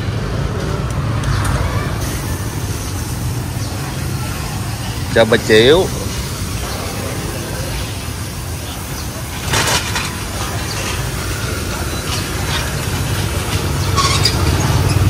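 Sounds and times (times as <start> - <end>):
traffic engine rumble: 0.0 - 15.0
short clatters: 9.3 - 15.0.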